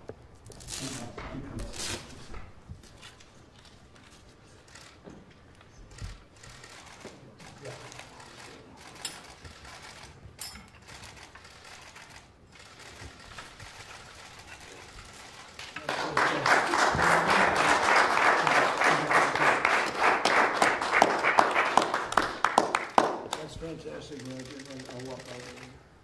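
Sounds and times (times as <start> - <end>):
people applauding: 15.2 - 23.6.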